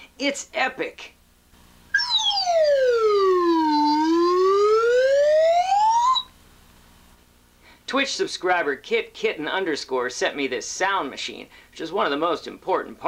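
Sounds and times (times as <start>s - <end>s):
slide whistle glide: 2.0s - 6.3s.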